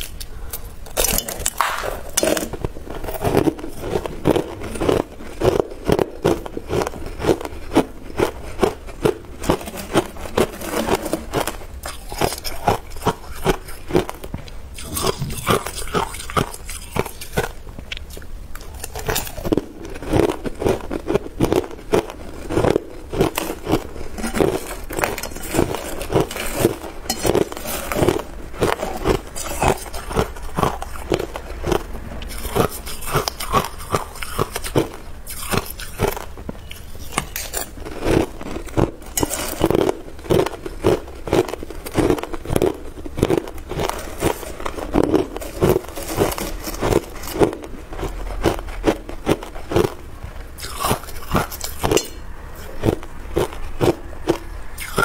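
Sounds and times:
ice crunching between teeth: 0.0 - 55.0
ice clinking against spoon and bowl: 24.2 - 28.2, 51.4 - 52.3.

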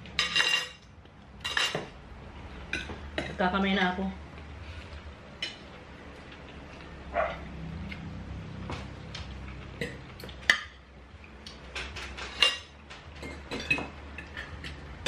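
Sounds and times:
steady low hum: 0.0 - 15.0
plates and utensils clinking: 0.1 - 2.0, 9.8 - 10.8, 11.5 - 15.0.

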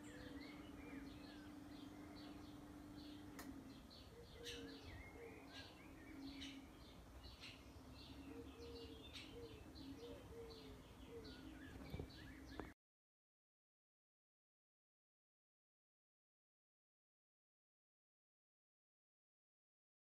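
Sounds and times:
faint low hum: 0.0 - 12.8.

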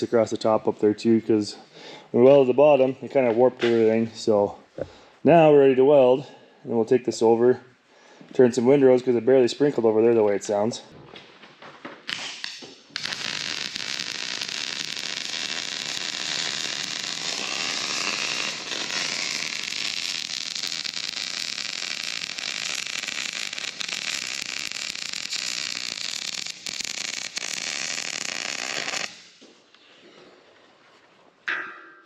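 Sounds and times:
arc welding crackle and hiss: 12.1 - 29.4.

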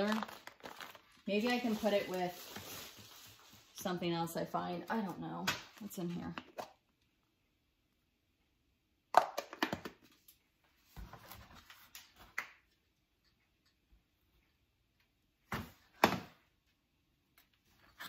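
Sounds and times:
rustling in cardboard box: 0.0 - 3.8.

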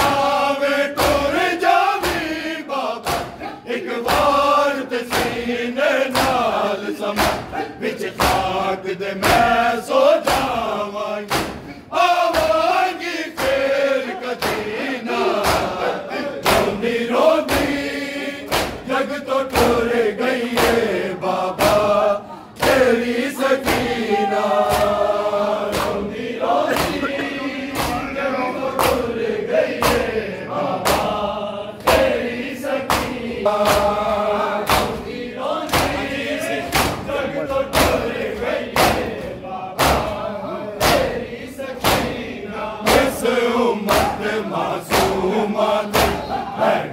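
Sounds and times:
men chanting in unison: 0.0 - 46.9
hands slapping chests: 3.0 - 4.4, 5.1 - 5.5, 6.1 - 6.6, 7.2 - 8.6, 9.2 - 9.6, 10.2 - 13.7, 14.4 - 14.7, 15.4 - 15.8, 16.4 - 16.8, 17.4 - 18.9, 19.5 - 20.9, 21.5 - 21.9, 23.6 - 24.0, 24.6 - 28.1, 28.8 - 29.1, 29.7 - 30.1, 30.8 - 31.2, 31.8 - 32.2, 32.8 - 35.1, 35.7 - 36.0, 36.6 - 37.1, 37.7 - 40.2, 40.8 - 41.2, 41.8 - 42.2, 42.8 - 43.2, 43.9 - 44.3, 44.9 - 45.2, 45.9 - 46.3.

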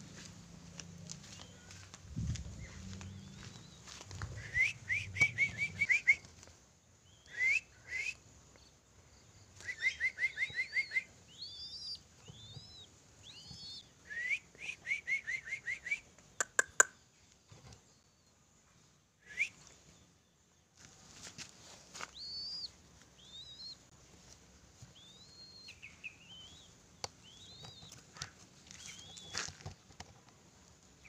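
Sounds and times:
quick rising whistles: 3.5 - 6.3, 7.3 - 8.2, 13.6 - 16.0
sharp clicks: 16.4 - 17.0.

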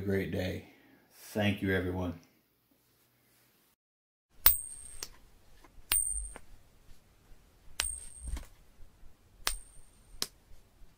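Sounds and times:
metallic coin clinks: 4.4 - 5.1, 5.9 - 6.4, 7.8 - 8.4.

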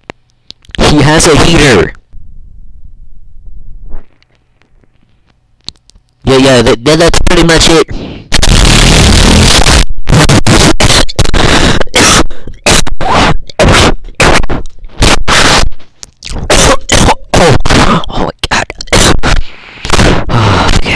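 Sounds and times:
harsh distorted noise bursts: 0.8 - 2.0, 6.3 - 20.9.

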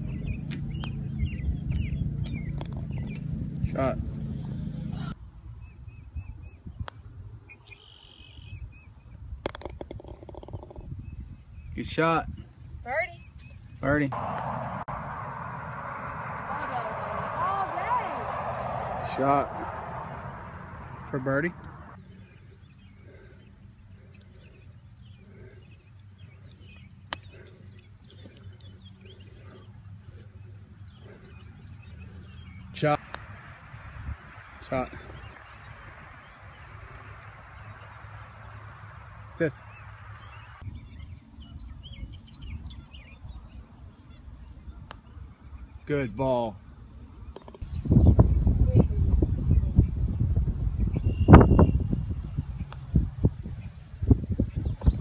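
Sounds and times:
wind rumble on microphone: 0.0 - 4.2, 4.9 - 7.6, 8.4 - 22.0, 30.2 - 45.9, 46.8 - 55.0
faint bird chirps: 7.6 - 8.7
putter striking golf ball: 9.4 - 10.8
loud low rumble: 14.1 - 22.0
low steady hum: 14.1 - 22.5.

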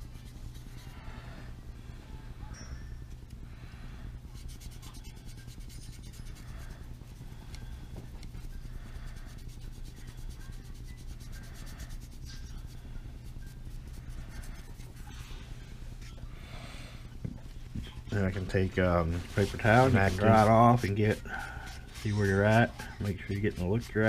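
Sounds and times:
paint brush scrubbing plastic: 4.3 - 16.2, 18.1 - 24.0.

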